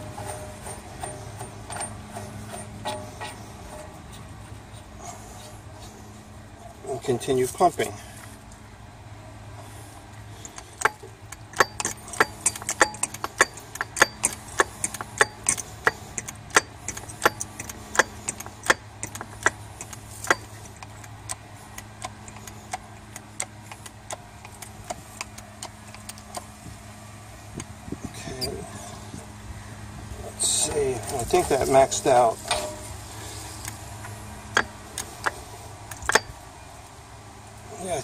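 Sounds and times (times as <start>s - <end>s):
hydraulic hand pump clicking: 10.4s - 26.4s, 34.6s - 36.3s.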